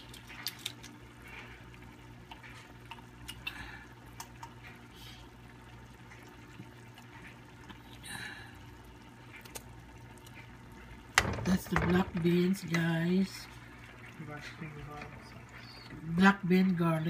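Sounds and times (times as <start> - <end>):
sauce simmering and bubbling: 0.0 - 17.0.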